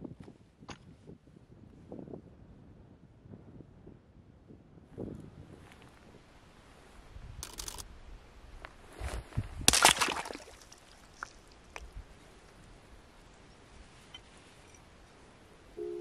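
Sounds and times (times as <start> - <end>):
thin ice cracking and breaking: 9.7 - 11.4.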